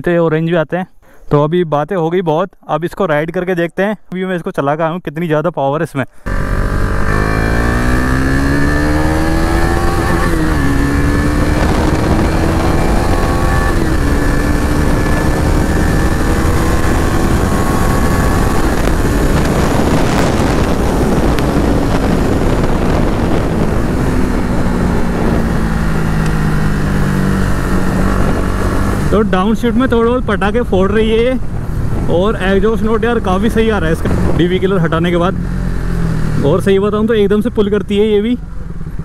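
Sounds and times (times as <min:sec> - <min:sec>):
motorcycle engine accelerating: 0:06.2 - 0:39.0
wind noise: 0:06.3 - 0:36.4.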